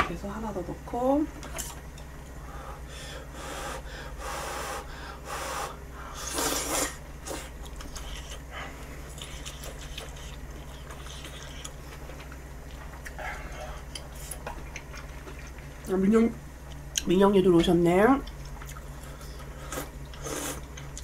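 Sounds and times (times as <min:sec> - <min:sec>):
person slurping noodles: 0:05.4 - 0:07.5.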